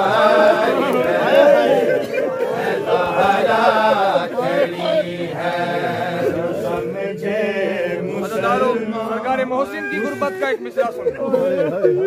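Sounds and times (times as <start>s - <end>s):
men chanting a lament: 0.0s - 12.0s.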